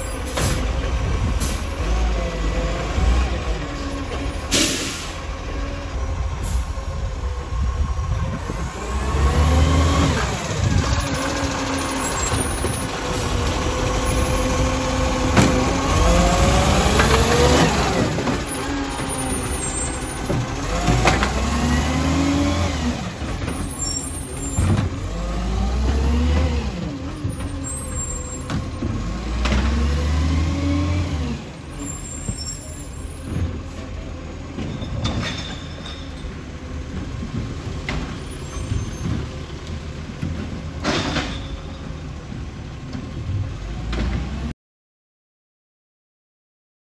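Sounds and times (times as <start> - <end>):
garbage truck engine revving: 0.0 - 35.0
air brake hisses: 4.5 - 5.2.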